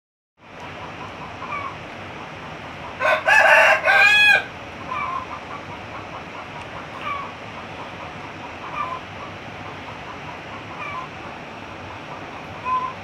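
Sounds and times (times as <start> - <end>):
rooster crowing: 3.0 - 5.2
faint short bird calls: 7.0 - 7.4, 8.6 - 9.1, 10.8 - 11.1, 12.6 - 13.0.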